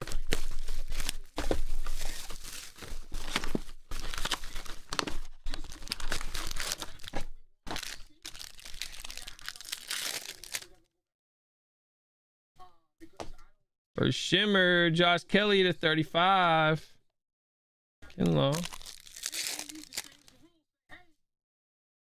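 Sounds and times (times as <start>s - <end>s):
foil pack tearing: 0.0s - 10.8s, 18.5s - 20.4s
shrink wrap crinkling and tearing: 0.0s - 10.8s, 18.2s - 20.4s.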